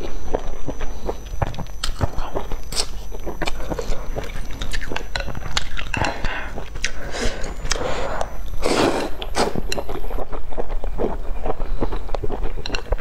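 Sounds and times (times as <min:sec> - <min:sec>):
wet chewing: 0:00.0 - 0:13.0
person slurping noodles: 0:06.0 - 0:09.7.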